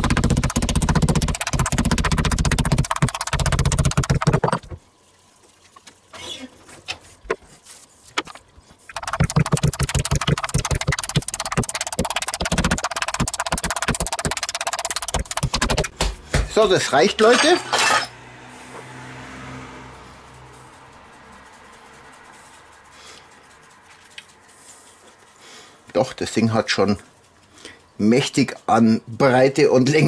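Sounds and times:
meat mallet pounding meat on board: 0.0s - 4.6s, 8.9s - 16.7s.

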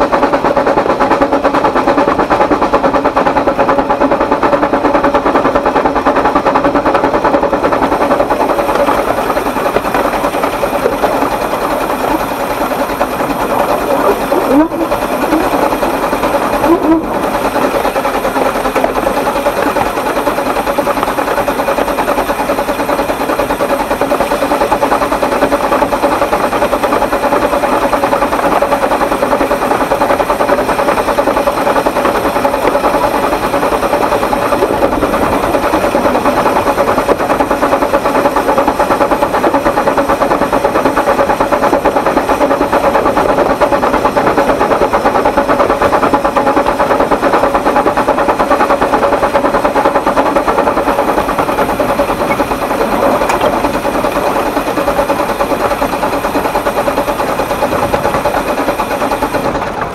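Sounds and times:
steam locomotive running: 0.0s - 59.9s
steady tone: 13.2s - 19.9s.

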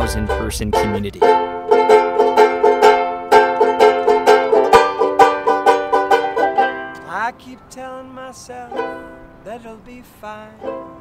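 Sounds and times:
banjo ukulele strumming: 0.0s - 9.8s, 10.4s - 11.0s.

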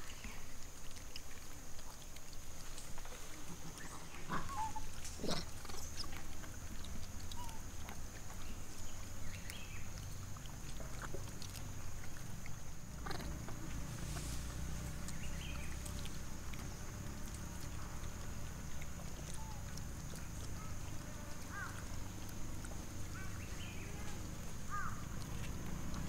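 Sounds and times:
monkeys squealing: 3.9s - 5.5s.

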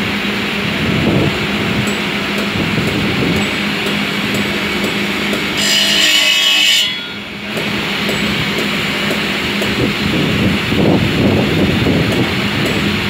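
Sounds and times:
marble cutting saw humming: 1.4s - 10.5s
saw blade squealing: 5.5s - 7.4s.

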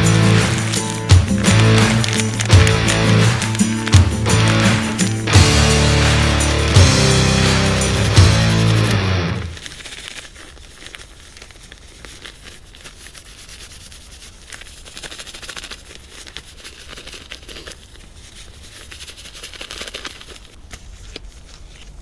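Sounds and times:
packet crinkling and rubbing: 0.0s - 22.0s.

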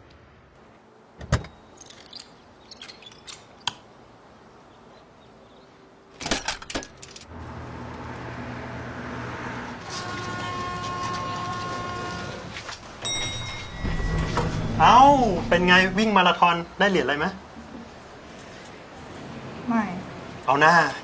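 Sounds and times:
steady tones: 12.8s - 16.9s
car driving noise: 13.6s - 16.8s.

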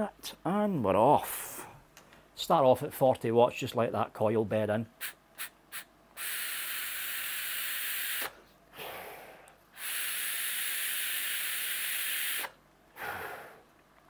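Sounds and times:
airy hiss of vape draw: 5.0s - 9.0s, 9.8s - 13.6s
breath exhaling vapour: 5.0s - 13.7s.

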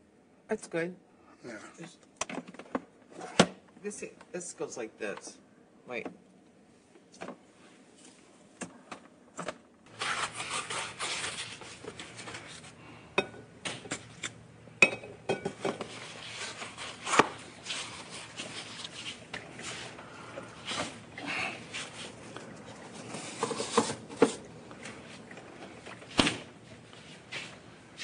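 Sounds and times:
picture frames rubbing and rustling: 9.9s - 12.8s, 15.7s - 28.0s.

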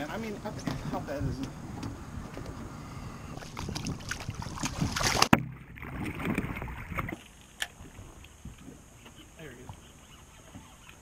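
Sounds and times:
wind: 0.0s - 11.0s
water splashing: 3.3s - 11.0s.

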